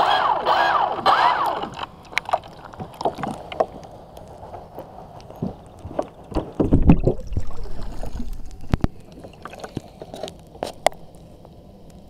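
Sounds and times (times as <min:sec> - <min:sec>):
knocks and clicks on hull: 0:01.4 - 0:03.9, 0:05.2 - 0:11.0
water splashing against boat hull: 0:01.6 - 0:03.9, 0:05.3 - 0:11.0.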